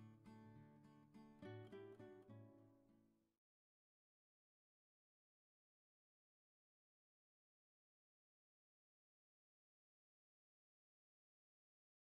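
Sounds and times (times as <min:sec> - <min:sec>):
acoustic guitar strumming: 0:00.0 - 0:02.7.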